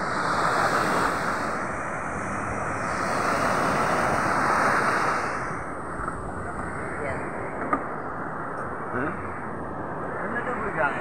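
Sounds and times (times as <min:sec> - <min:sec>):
ocean surf breaking on beach: 0:00.0 - 0:07.4
wind on microphone: 0:00.0 - 0:11.0.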